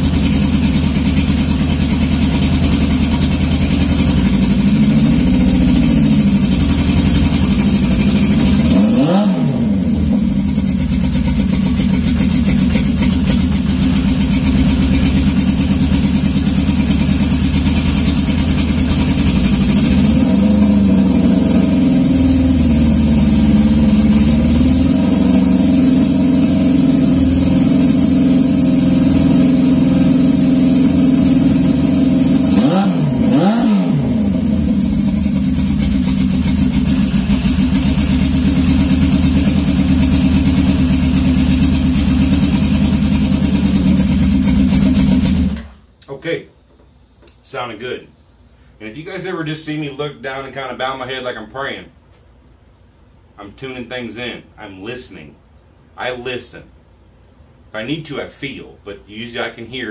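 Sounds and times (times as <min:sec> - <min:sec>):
motorcycle engine idling: 0:00.0 - 0:45.7.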